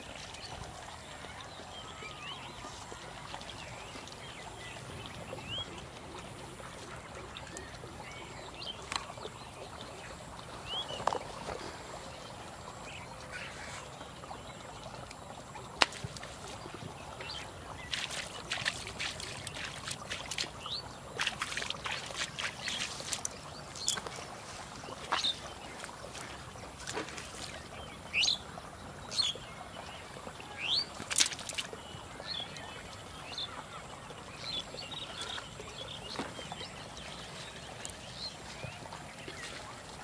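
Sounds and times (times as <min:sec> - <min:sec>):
fish splashing in water: 0:14.9 - 0:27.7, 0:30.2 - 0:31.8.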